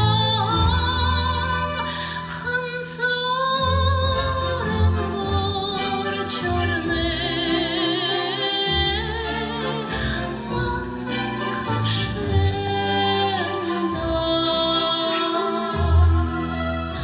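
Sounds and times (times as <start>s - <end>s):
instrumental accompaniment: 0.0s - 17.0s
woman singing into a microphone: 0.0s - 17.0s.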